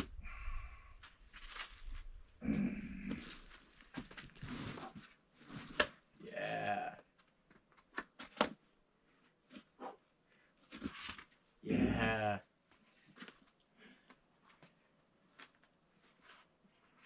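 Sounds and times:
man grunting with effort: 2.4 - 3.2, 6.2 - 7.0, 11.6 - 12.4
man yelling strained: 6.2 - 7.0, 11.7 - 12.4.

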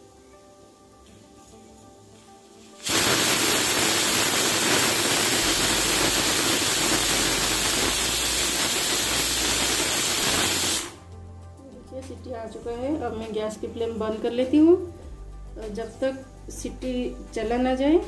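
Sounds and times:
pressure cooker steam hiss: 1.1 - 11.0.

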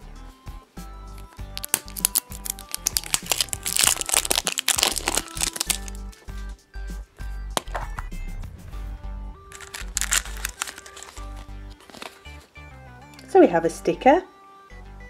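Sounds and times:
background music: 0.0 - 15.0
plastic wrapper crinkling: 1.2 - 6.0, 9.5 - 12.4.

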